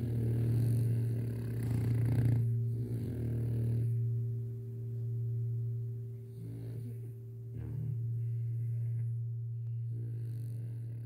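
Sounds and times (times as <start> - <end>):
dog snoring: 0.0 - 4.1, 6.3 - 9.1, 9.8 - 11.0
low singing-bowl tone: 0.0 - 11.0.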